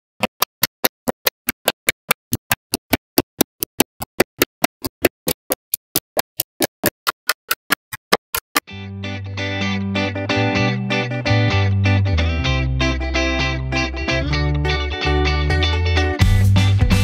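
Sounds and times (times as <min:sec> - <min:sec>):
magnetic balls clicking: 0:00.2 - 0:08.7.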